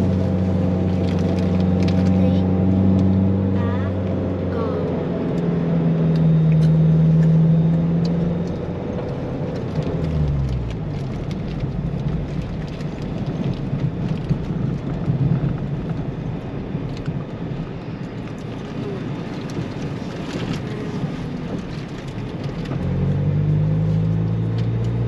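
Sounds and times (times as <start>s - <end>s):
vehicle engine revving: 0.0s - 12.8s, 20.2s - 25.0s.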